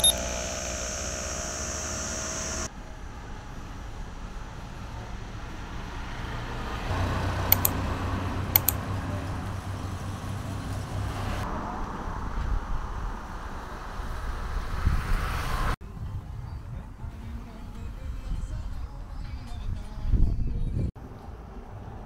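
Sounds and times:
sharp clicks: 0.0 - 2.7, 7.5 - 7.8, 8.6 - 8.8
vehicle passing rumble: 2.1 - 17.2.

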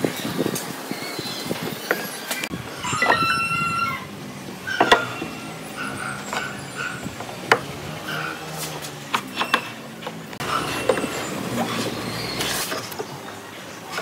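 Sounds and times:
wooden boards knocking: 4.8 - 5.4, 6.1 - 7.8.

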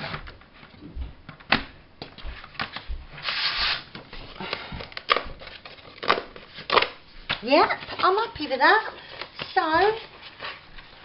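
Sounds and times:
card rustling: 2.4 - 11.0.

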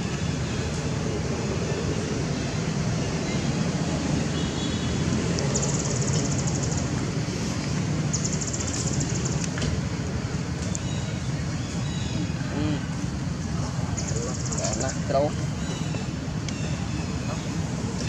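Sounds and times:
low rumble and hiss: 0.0 - 18.0.

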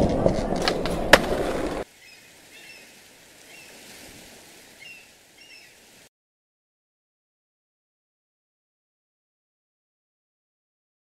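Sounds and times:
skateboard pop: 0.0 - 1.8
skateboard wheels rolling: 0.0 - 1.9.

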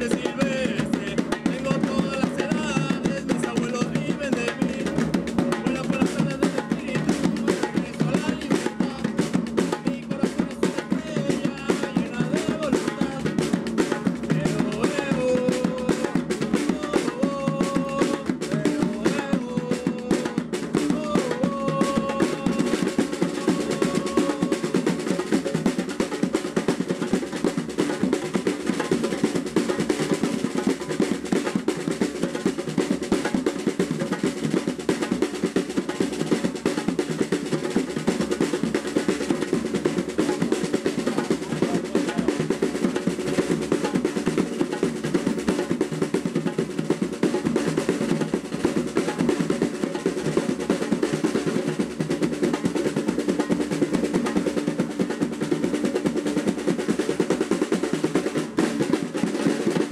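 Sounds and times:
fast drum roll: 0.0 - 59.9.

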